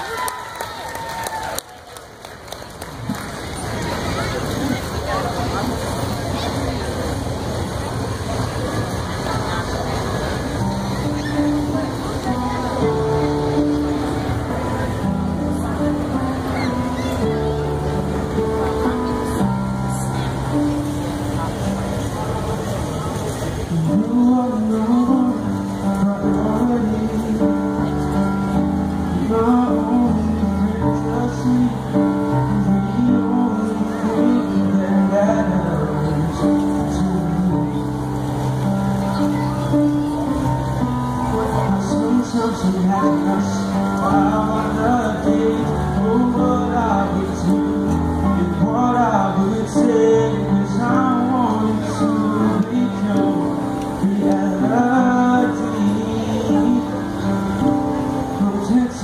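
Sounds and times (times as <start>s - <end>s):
grand piano playing: 7.6s - 59.0s
man singing: 23.7s - 28.4s, 29.0s - 38.1s, 41.7s - 59.0s.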